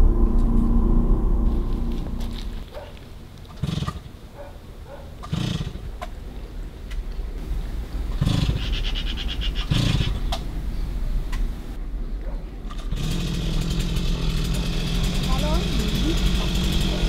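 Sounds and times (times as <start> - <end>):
chainsaw revving: 3.4 - 4.1, 5.2 - 5.9, 8.2 - 11.3, 12.8 - 17.0.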